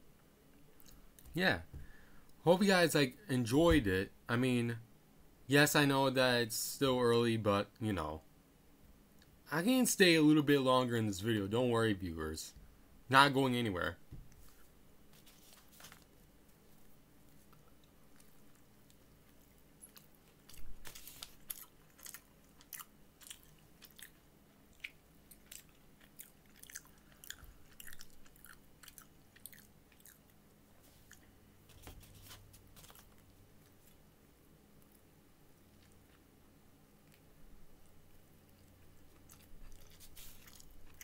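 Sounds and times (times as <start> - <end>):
chewing and crunching food: 0.8 - 1.2, 15.2 - 31.4, 34.8 - 41.0.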